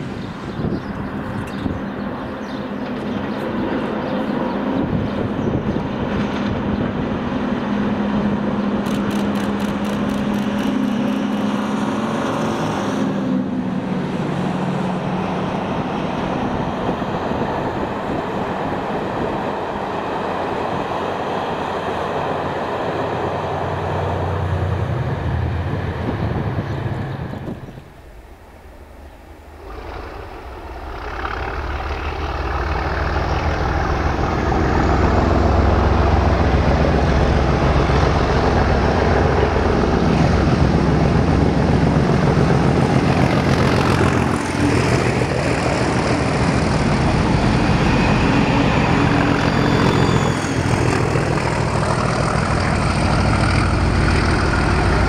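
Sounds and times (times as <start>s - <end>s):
diesel locomotive engine: 0.0s - 55.0s
train noise: 0.0s - 55.0s
rapid run of clicks: 8.8s - 11.5s.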